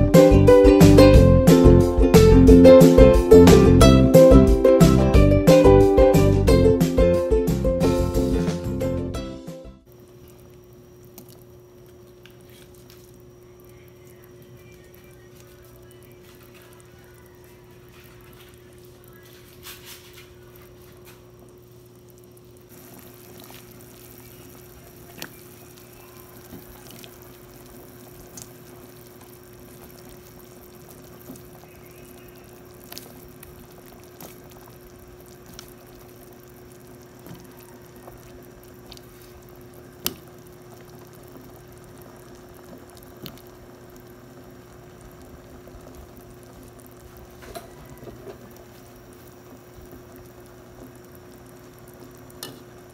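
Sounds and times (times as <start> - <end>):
broth simmering: 0.0 - 52.9
steady low hum: 0.0 - 52.9
drips and splashes of liquid: 9.9 - 13.3, 20.7 - 41.5.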